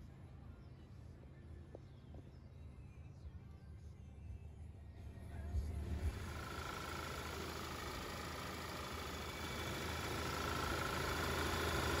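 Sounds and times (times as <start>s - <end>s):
car engine idling with whine: 3.9s - 12.0s.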